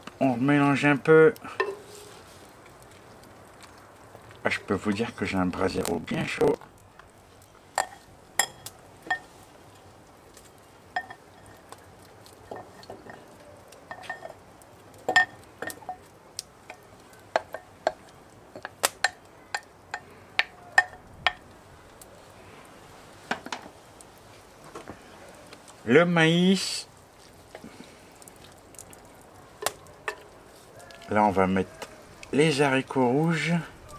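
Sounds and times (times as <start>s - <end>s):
metal utensils clinking on hot plate: 7.8s - 9.3s, 11.0s - 11.7s, 12.5s - 14.4s, 15.1s - 16.1s, 29.6s - 30.3s.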